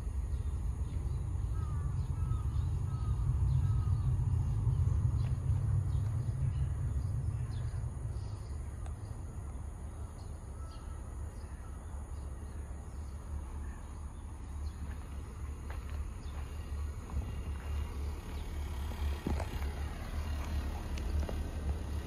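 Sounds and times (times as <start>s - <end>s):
low rumble: 0.0s - 11.4s
faint bird chirps: 0.3s - 15.2s.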